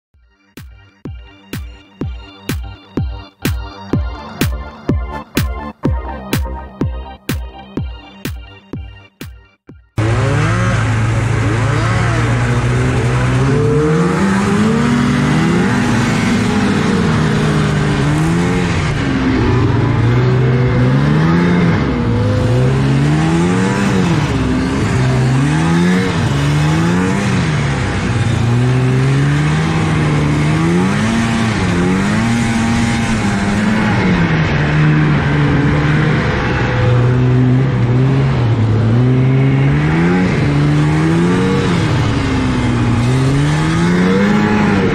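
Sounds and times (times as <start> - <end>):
snowmobile engine revving: 10.0 - 44.9.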